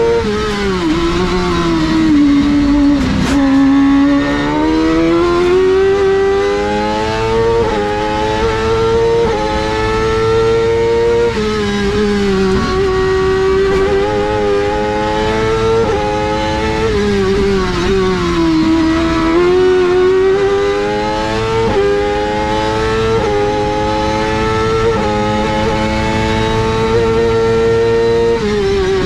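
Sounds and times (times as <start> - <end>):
race car engine at high revs: 0.0 - 29.0.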